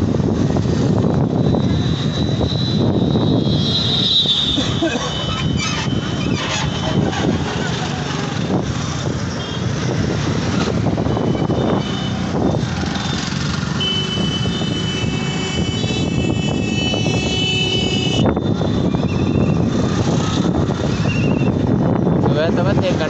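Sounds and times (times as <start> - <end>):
road and wind noise: 0.0 - 23.0
three-wheeler engine running: 4.4 - 21.8.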